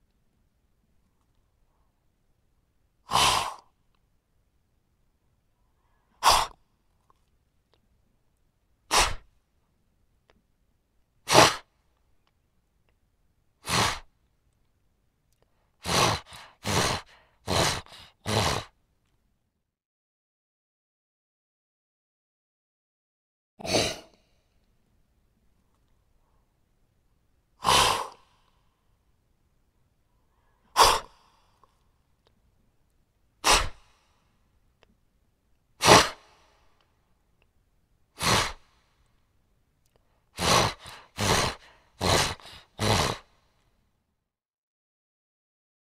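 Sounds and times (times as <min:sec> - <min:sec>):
animal snorting: 0:03.1 - 0:03.7, 0:06.2 - 0:06.6, 0:08.9 - 0:09.2, 0:11.3 - 0:11.6, 0:13.6 - 0:14.0, 0:15.8 - 0:18.7, 0:23.6 - 0:24.2, 0:27.6 - 0:28.2, 0:30.8 - 0:31.1, 0:33.4 - 0:33.8, 0:35.8 - 0:36.3, 0:38.2 - 0:38.6, 0:40.4 - 0:43.3.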